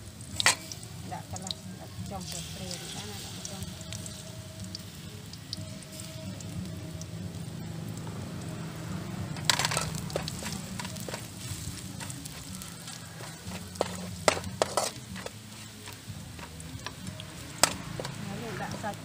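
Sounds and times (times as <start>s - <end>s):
garlic sizzling in oil: 0.0s - 19.0s
metal spatula scraping a wok: 9.4s - 17.0s.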